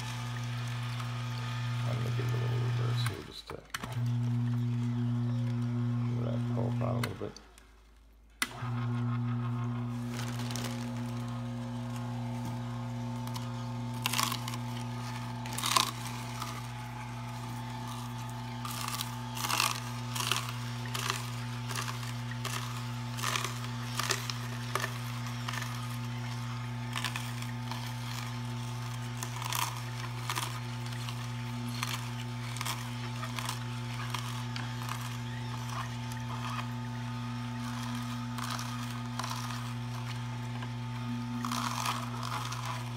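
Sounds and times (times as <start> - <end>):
juicer motor hum: 0.0 - 7.6, 8.4 - 42.9
vegetables crunching and cracking: 9.8 - 42.9.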